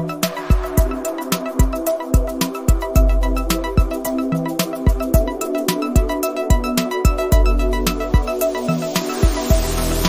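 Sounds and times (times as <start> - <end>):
electronic music with steady beat: 0.0 - 10.0
deep bass: 0.5 - 4.0, 7.3 - 8.4.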